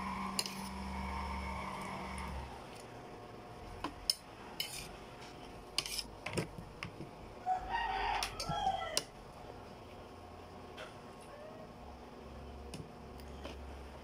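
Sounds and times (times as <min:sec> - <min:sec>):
metal spoon scraping plate: 0:00.3 - 0:01.0, 0:04.1 - 0:05.0, 0:05.7 - 0:06.1
rooster crowing: 0:07.4 - 0:09.1.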